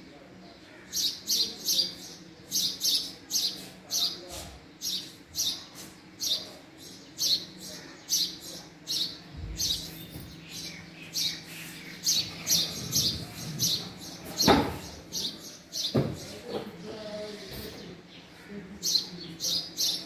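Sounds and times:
sparrow chirping: 0.9 - 20.0.

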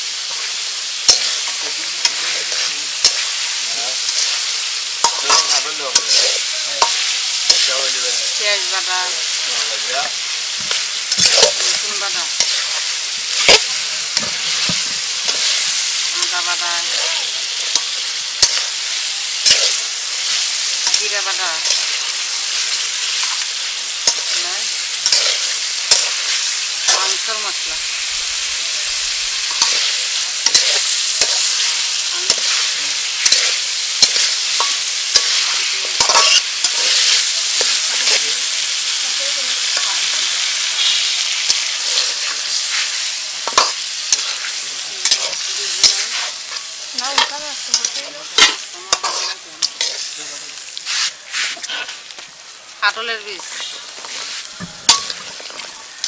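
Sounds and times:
curry sizzling in a pot: 0.0 - 56.0
metal spatula scraping a pot: 33.2 - 37.0, 47.2 - 50.1.

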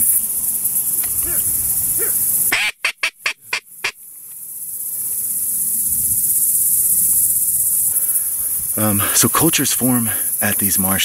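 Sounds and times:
crickets trilling: 0.0 - 11.0
duck quacking: 2.0 - 4.0.

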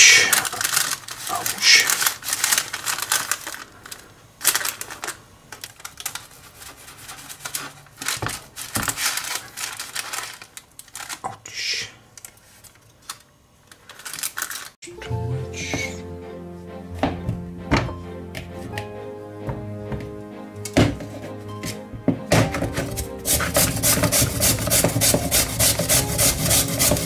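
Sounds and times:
music: 14.8 - 27.0
utensils clicking and scraping: 22.8 - 27.0.

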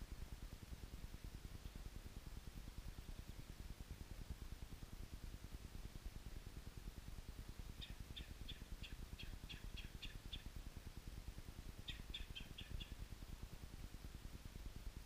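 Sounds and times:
low steady rumble: 0.0 - 15.0
small songbird calling: 7.7 - 10.6, 11.8 - 13.0.

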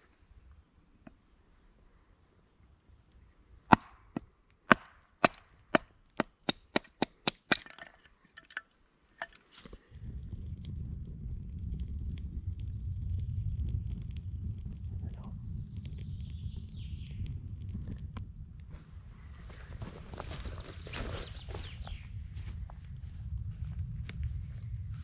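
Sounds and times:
steady low rumble: 9.9 - 25.0.

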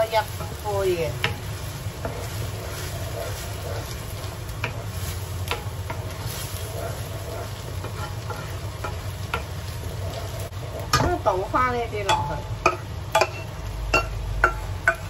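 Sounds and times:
wooden spatula scraping a wok: 0.0 - 13.6
rice sizzling in a wok: 0.0 - 15.0
spatula tapping on pan: 8.8 - 9.5, 12.0 - 15.0.

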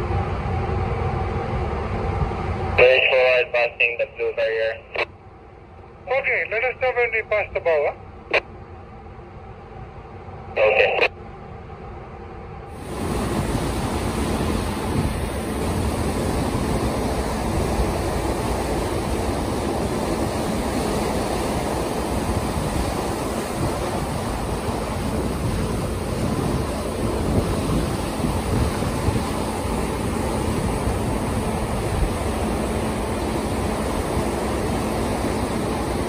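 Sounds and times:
bow wave rushing along hull: 0.0 - 36.0
wind buffeting microphone: 12.7 - 36.0.

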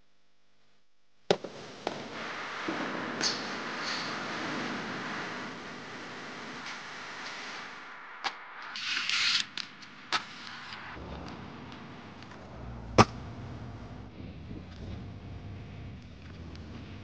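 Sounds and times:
low microphone rumble: 11.0 - 17.0.

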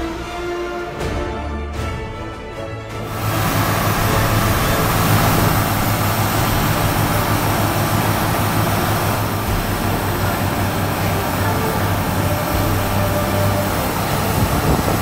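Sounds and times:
tractor engine running: 3.0 - 15.0.

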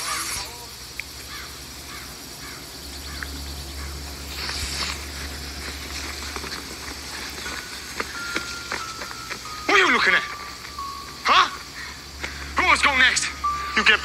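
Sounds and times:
short bird calls: 0.0 - 8.3
low steady hum: 0.0 - 14.0.

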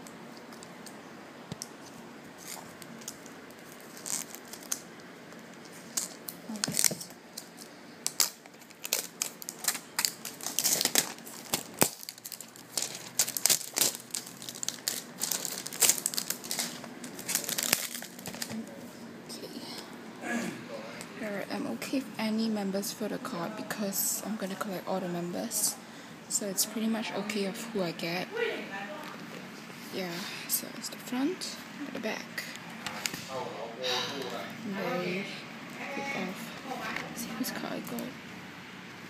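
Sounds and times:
plastic wrap crinkling and tearing: 2.4 - 18.8.

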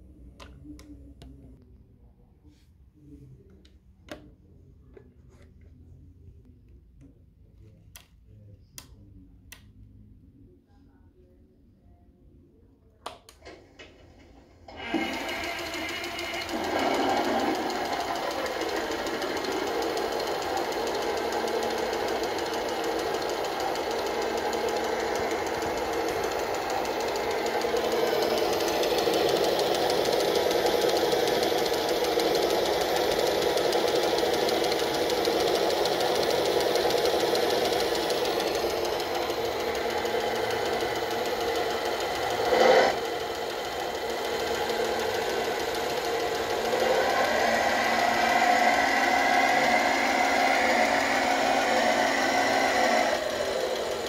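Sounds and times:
electronic truck engine idling: 14.8 - 54.0.

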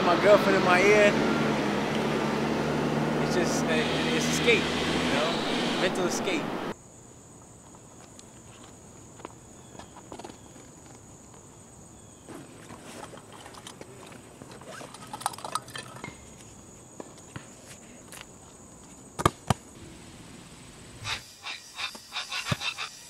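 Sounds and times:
high-pitched whine: 0.0 - 6.8.

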